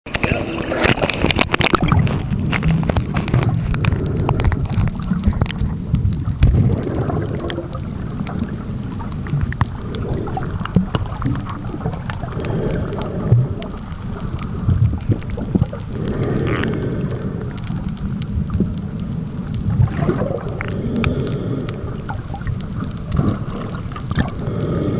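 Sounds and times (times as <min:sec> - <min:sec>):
underwater rumble of moving water: 0:00.1 - 0:24.9.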